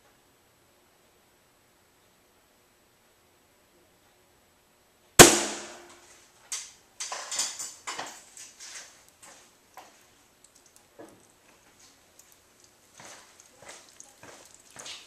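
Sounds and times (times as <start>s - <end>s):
air rifle shot cracking: 5.2s - 6.0s
pellet hitting water jug ringing: 5.2s - 6.0s
faint taps and rustles: 6.0s - 15.0s.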